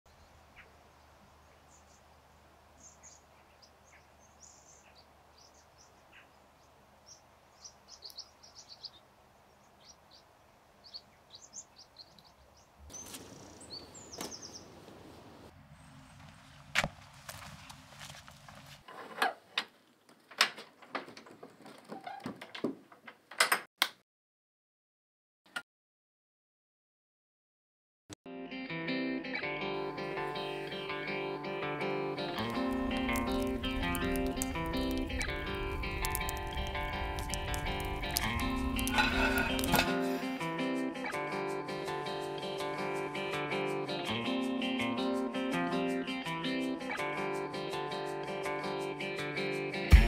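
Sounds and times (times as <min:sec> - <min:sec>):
small birds chirping: 0:00.1 - 0:14.9, 0:32.2 - 0:40.4
wooden door opening: 0:20.3 - 0:23.6.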